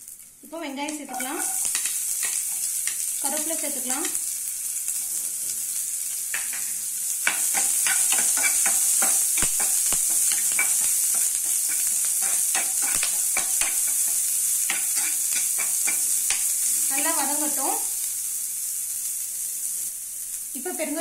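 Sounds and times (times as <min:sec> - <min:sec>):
onion sizzling in hot oil: 0:00.0 - 0:21.0
spoon scraping and tapping pan: 0:01.1 - 0:03.1, 0:06.3 - 0:16.6.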